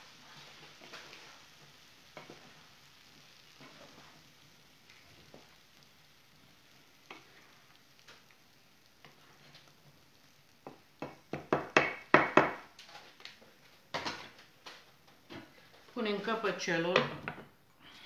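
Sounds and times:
spatulas knocking on metal pan: 10.6s - 12.6s.

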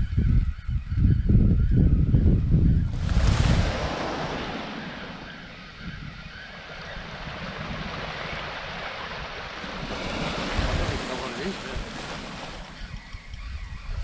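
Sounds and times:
wind buffeting microphone: 0.0s - 14.0s
small waves on pebble beach: 3.0s - 5.5s, 6.8s - 12.8s.

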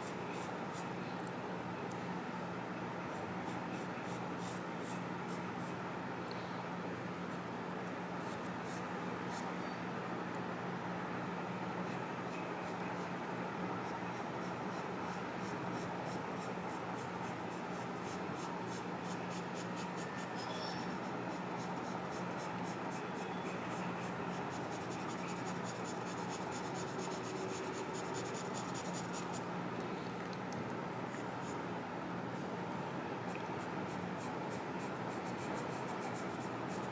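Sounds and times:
pencil scratching on paper: 17.3s - 29.4s.

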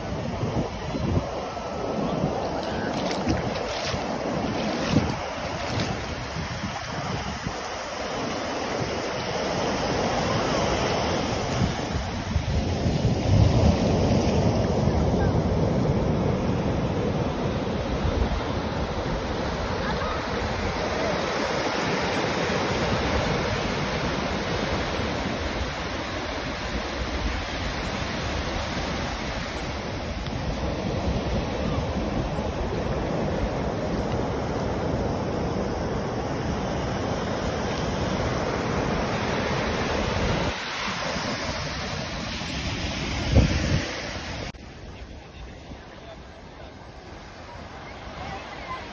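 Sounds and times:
wind rumbling on microphone: 0.0s - 45.9s
ocean surf breaking on sand: 0.0s - 48.9s.

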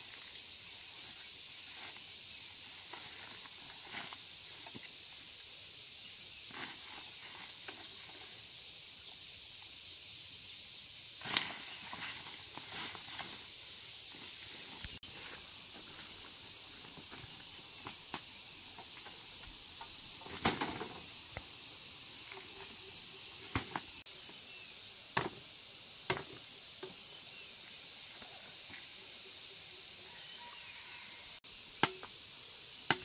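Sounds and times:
sugar cane stalks clacking: 19.8s - 21.0s, 31.8s - 32.1s.

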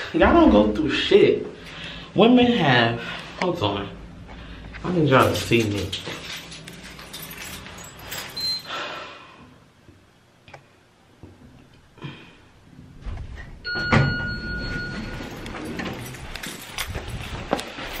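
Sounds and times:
elevator doors sliding open: 12.7s - 17.9s
elevator electronic tone: 13.6s - 16.0s.

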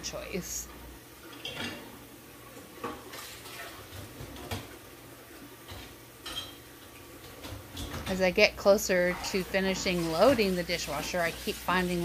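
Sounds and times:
dishes clattering in dishwasher racks: 1.3s - 2.0s, 5.6s - 6.6s, 7.2s - 11.9s.

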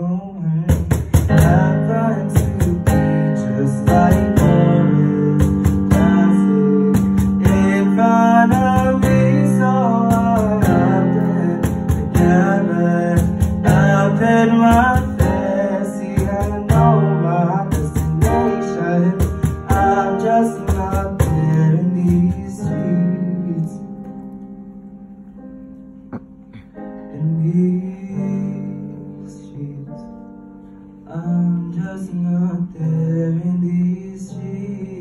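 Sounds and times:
piano chords: 0.0s - 35.0s
cajon beats: 0.7s - 1.7s, 2.3s - 3.2s, 3.9s - 4.8s, 5.4s - 6.3s, 6.9s - 7.8s, 8.5s - 11.0s, 11.6s - 15.6s, 16.2s - 17.0s, 17.7s - 22.7s.

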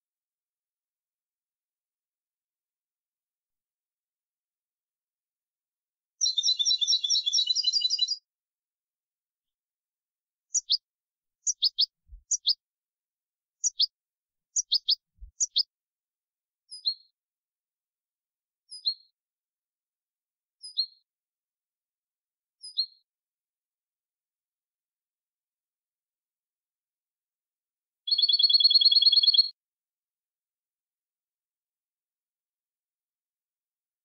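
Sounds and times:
goldfinch singing: 6.2s - 8.2s, 10.5s - 10.8s, 11.4s - 12.6s, 13.6s - 13.9s, 14.6s - 15.7s, 28.1s - 29.5s.

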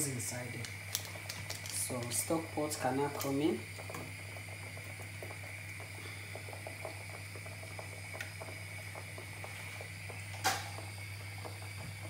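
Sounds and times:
steady low hum: 0.0s - 12.0s
stew bubbling and popping: 0.6s - 12.0s.

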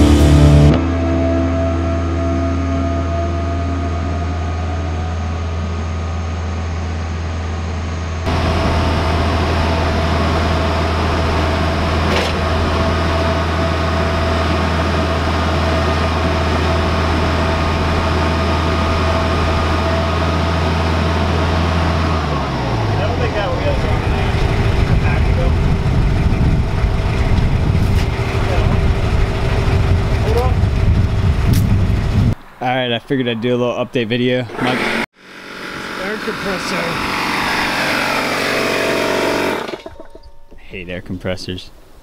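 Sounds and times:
air compressor running: 4.9s - 32.0s, 34.5s - 39.9s
motor winding down: 8.3s - 32.2s, 34.5s - 40.1s.

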